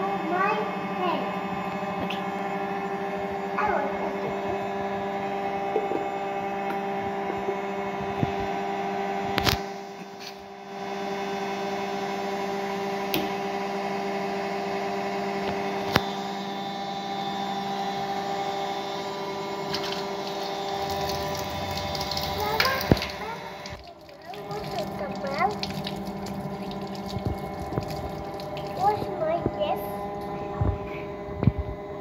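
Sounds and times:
steady electrical hum: 15.1s - 32.0s.

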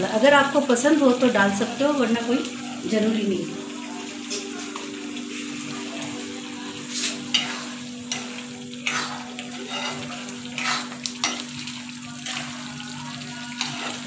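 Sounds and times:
curry sizzling in a wok: 0.0s - 14.0s
spoon scraping a pan: 6.8s - 12.7s, 13.5s - 14.0s.

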